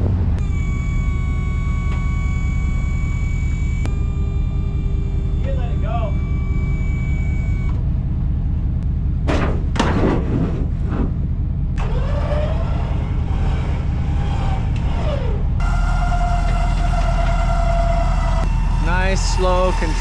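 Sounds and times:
truck engine rumbling: 0.0s - 20.0s.

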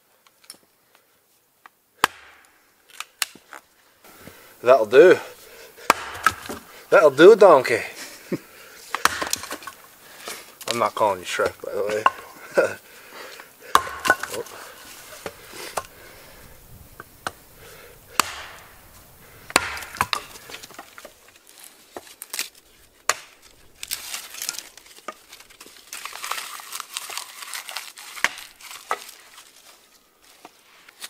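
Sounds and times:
sticks and bark crackling: 0.2s - 31.0s
hatchet splitting wood: 2.0s - 3.4s, 5.8s - 6.7s, 8.9s - 10.8s, 11.8s - 12.4s, 13.7s - 16.0s, 18.1s - 21.2s, 23.1s - 25.2s, 28.1s - 29.2s.

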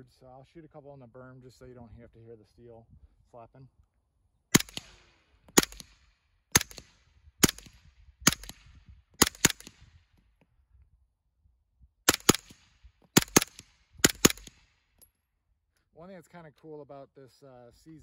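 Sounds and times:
muffled suppressed gunshots: 4.5s - 9.9s, 12.1s - 14.7s.

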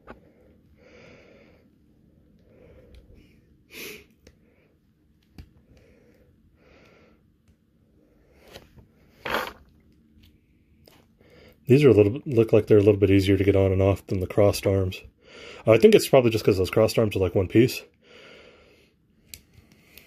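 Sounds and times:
person breathing and sniffing: 2.4s - 4.8s.

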